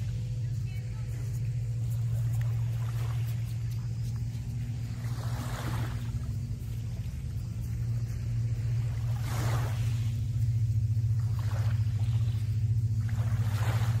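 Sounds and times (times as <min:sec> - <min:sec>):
low engine drone: 0:00.0 - 0:14.0.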